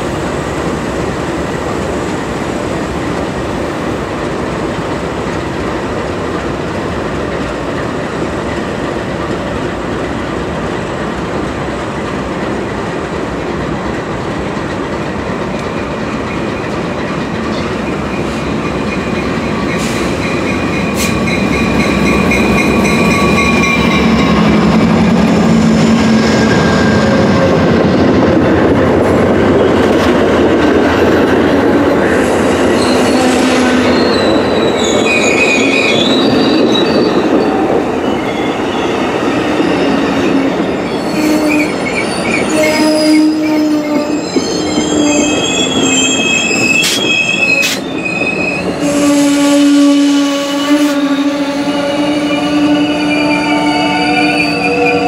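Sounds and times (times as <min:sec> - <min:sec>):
diesel locomotive passing: 0:00.0 - 0:55.0
train cars rolling past: 0:00.0 - 0:55.0
steel wheels squealing: 0:17.5 - 0:24.7, 0:32.3 - 0:49.5, 0:52.3 - 0:55.0.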